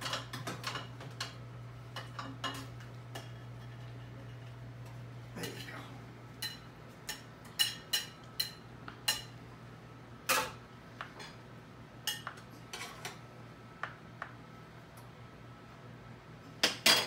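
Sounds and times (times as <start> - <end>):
metal utensil clinking on dishes: 6.4 - 9.3.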